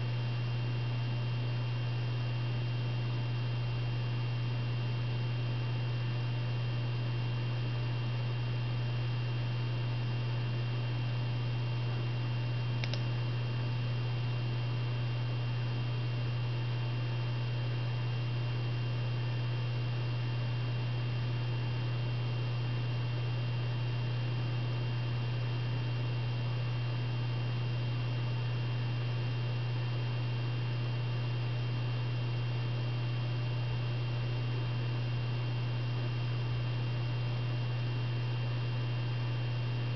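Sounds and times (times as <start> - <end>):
low electrical hum: 0.0 - 39.9
faint tick: 12.8 - 13.0.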